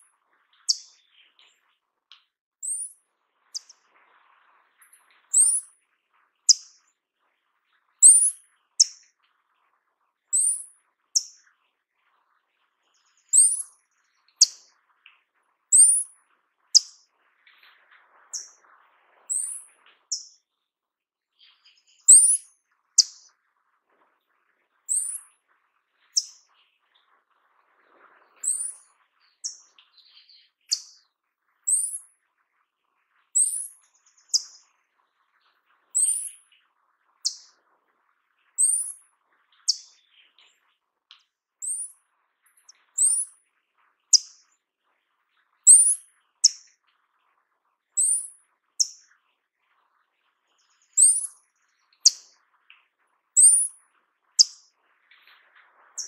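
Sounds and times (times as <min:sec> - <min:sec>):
bird calling high thin whistles: 0:05.3 - 0:05.7, 0:13.4 - 0:13.7, 0:24.9 - 0:25.2, 0:28.4 - 0:28.8, 0:41.6 - 0:41.9, 0:43.0 - 0:43.3, 0:45.7 - 0:46.6, 0:53.4 - 0:53.7.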